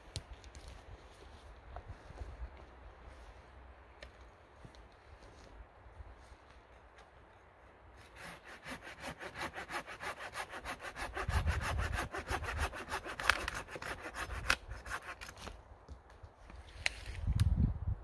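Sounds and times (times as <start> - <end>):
hand saw cutting wood: 8.0 - 15.5.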